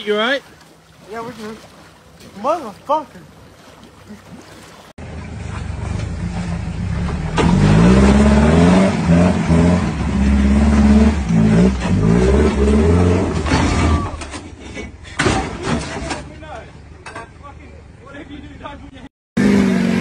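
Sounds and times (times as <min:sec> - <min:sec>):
pickup engine revving: 0:05.0 - 0:14.1.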